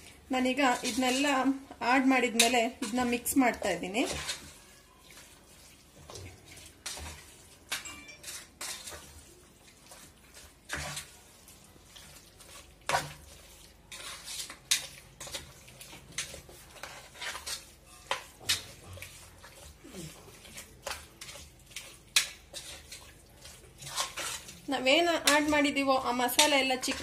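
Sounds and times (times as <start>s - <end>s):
squelching of hand mixing marinade: 0.0s - 27.0s.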